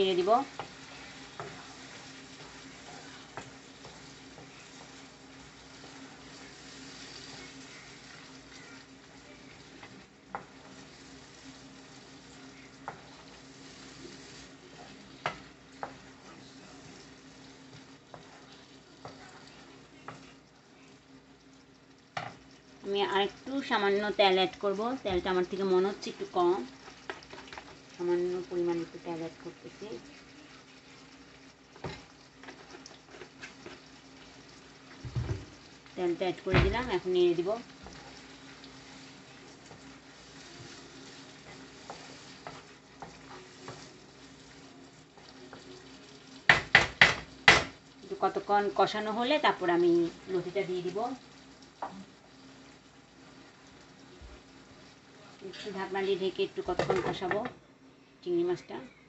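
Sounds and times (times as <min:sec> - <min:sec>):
prawns sizzling in a pan: 0:00.0 - 0:59.0
spatula knocking against pan: 0:46.5 - 0:47.8.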